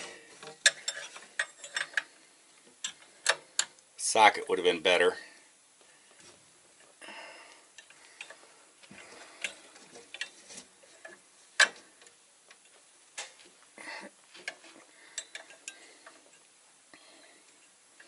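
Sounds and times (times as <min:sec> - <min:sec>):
soft rustles: 0:08.0 - 0:12.0.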